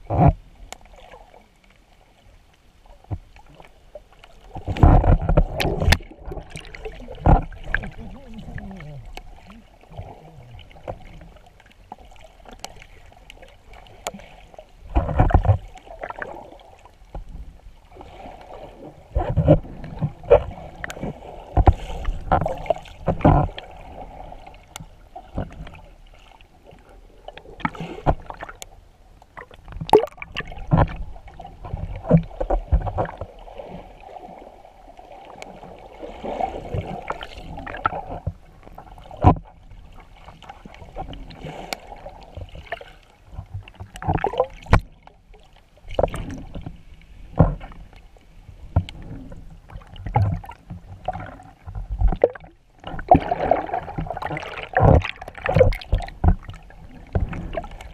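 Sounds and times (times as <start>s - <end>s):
water rushing and bubbling: 0.0s - 57.9s
fins kicking underwater: 4.4s - 11.4s, 29.4s - 34.6s, 35.2s - 45.1s, 45.8s - 48.0s, 48.6s - 57.9s.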